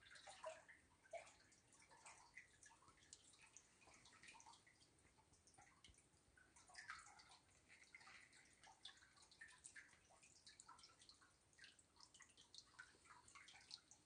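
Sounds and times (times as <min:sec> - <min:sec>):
faint water trickling and dripping: 0:00.0 - 0:14.0.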